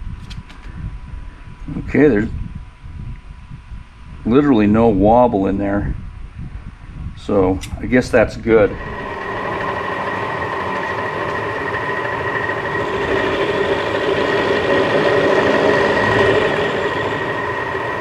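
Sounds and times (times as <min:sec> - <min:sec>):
power tool whining while cutting: 0:08.7 - 0:18.0.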